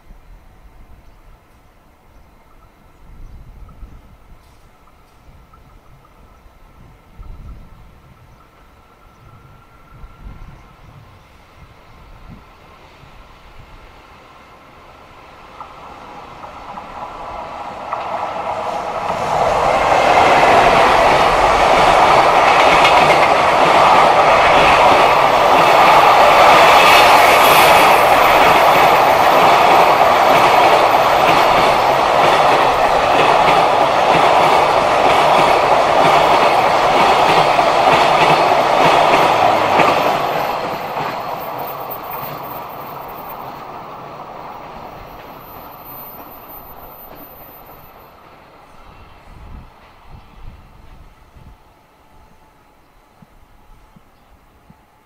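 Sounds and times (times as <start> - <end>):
freight train passing: 0.0 - 55.0
train wheels clattering on rails: 15.5 - 48.0.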